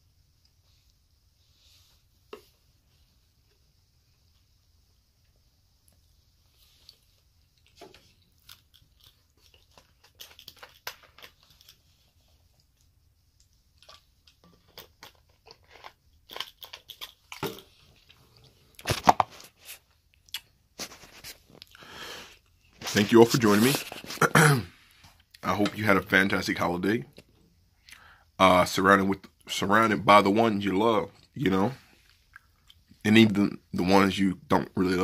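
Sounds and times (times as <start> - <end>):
chewing with crisp clicks: 6.8 - 11.9, 12.5 - 17.4, 20.1 - 20.5, 27.2 - 28.1, 32.3 - 33.0.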